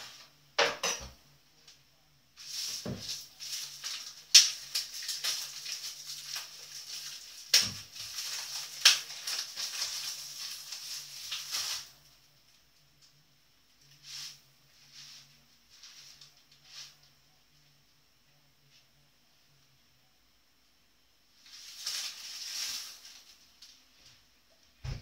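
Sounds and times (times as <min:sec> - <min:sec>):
food crunching and crackling: 0:02.4 - 0:12.0, 0:21.4 - 0:23.8.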